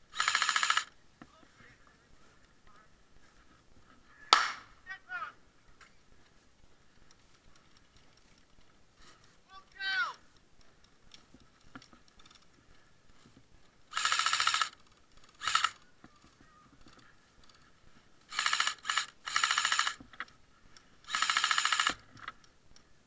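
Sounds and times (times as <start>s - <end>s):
airsoft rifle rapid clicking shots: 0.1s - 1.0s, 13.9s - 15.8s, 18.3s - 20.0s, 21.1s - 22.1s.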